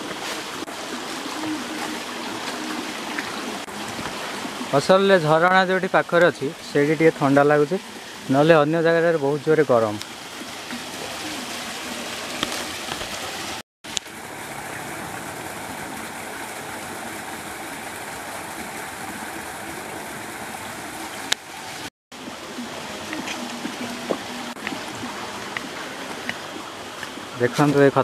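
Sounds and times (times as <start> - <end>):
waterfall rushing: 0.0 - 28.0.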